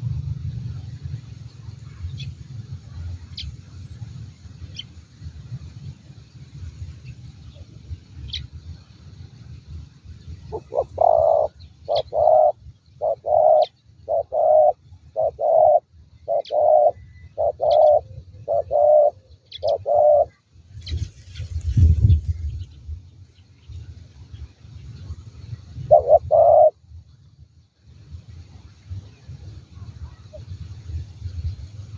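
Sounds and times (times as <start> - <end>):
small birds chirping: 0.7 - 26.8
dove cooing: 10.5 - 20.4, 25.8 - 26.8.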